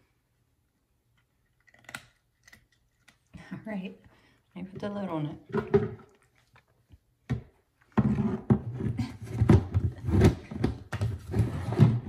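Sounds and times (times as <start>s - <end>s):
plastic lid scraping and knocking: 4.8s - 6.1s, 7.3s - 12.0s.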